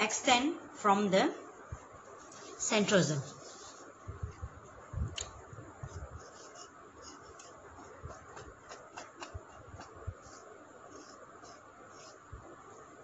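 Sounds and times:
marker scratching on whiteboard: 3.2 - 4.4, 5.8 - 12.8.

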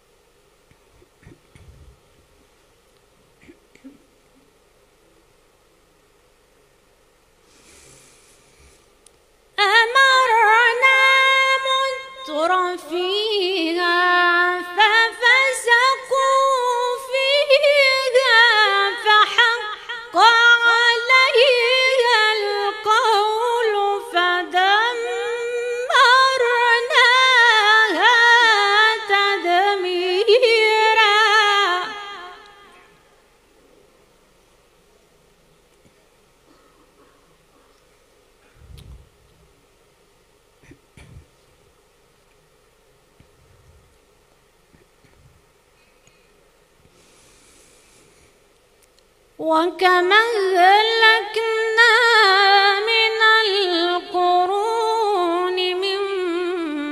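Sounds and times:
woman chanting recitation: 9.6 - 32.9.

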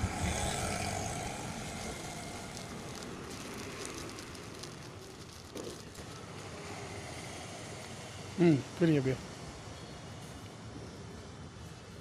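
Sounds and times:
plastic mailer crinkling and tearing: 0.0 - 6.2.

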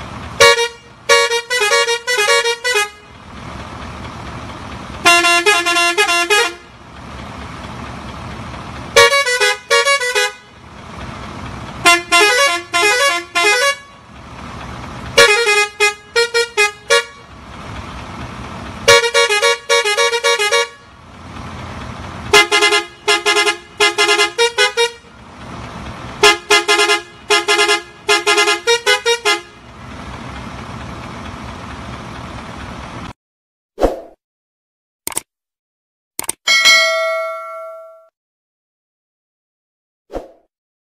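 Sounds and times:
bus musical horn: 0.3 - 3.4, 5.0 - 6.8, 8.9 - 11.0, 11.6 - 14.2, 15.1 - 17.5, 18.7 - 21.0, 22.2 - 25.2, 26.1 - 29.8.

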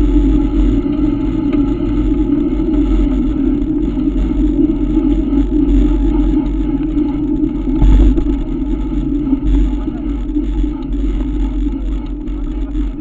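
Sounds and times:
bike rolling on paved road: 0.0 - 13.0
bike bump: 7.8 - 8.4.

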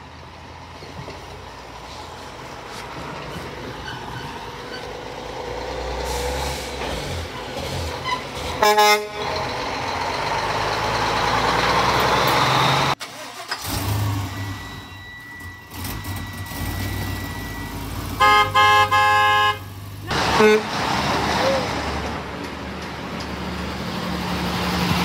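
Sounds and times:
truck horns honking: 7.9 - 9.7, 15.5 - 21.8.

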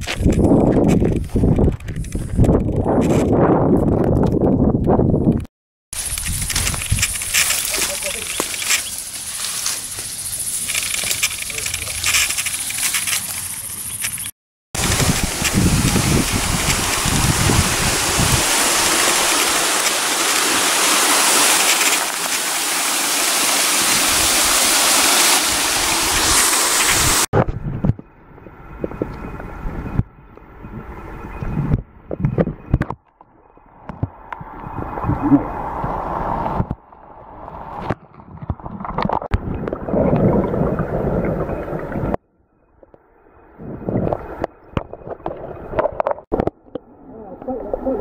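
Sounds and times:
stream water rushing over rocks: 14.8 - 27.3
muffled underwater stream gurgling: 33.9 - 36.8, 37.5 - 42.2, 43.4 - 48.0.

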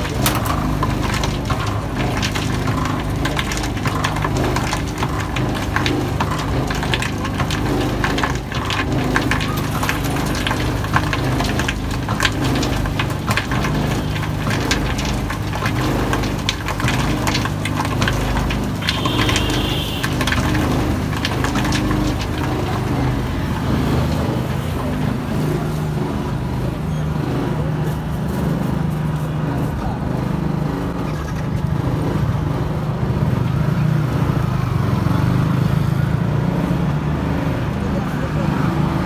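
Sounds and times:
crackling and clicking: 0.0 - 26.6
machine drum humming: 0.0 - 27.7.

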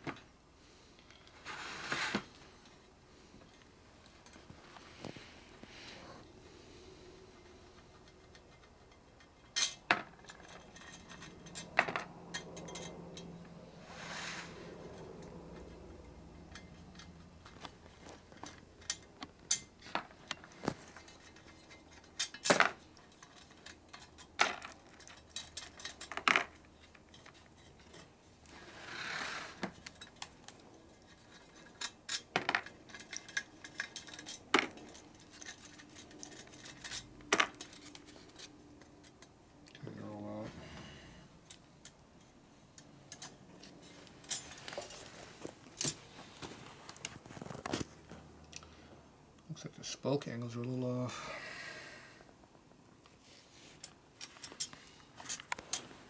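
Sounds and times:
metal spokes clinking: 7.4 - 13.6, 14.6 - 28.4, 29.6 - 39.9, 41.4 - 46.0.

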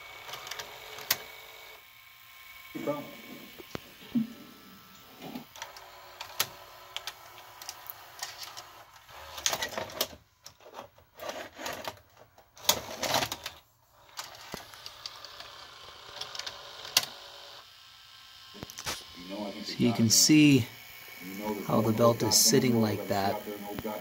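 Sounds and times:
loading motor whirring: 0.0 - 24.0.

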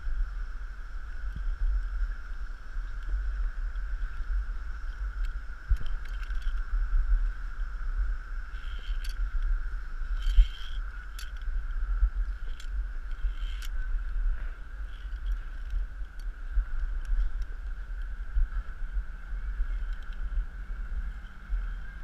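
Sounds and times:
high-pitched hum: 0.0 - 22.0
wind buffeting microphone: 0.0 - 22.0
clicks and knocks of gear: 4.9 - 7.2, 8.5 - 20.3.

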